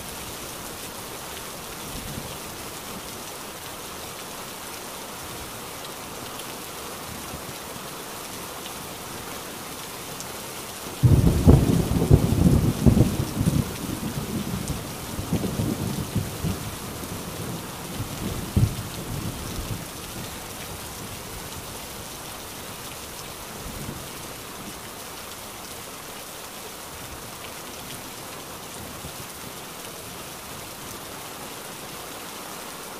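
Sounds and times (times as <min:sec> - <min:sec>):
heavy rain: 0:00.0 - 0:32.9
thunder rumbling: 0:11.0 - 0:19.7.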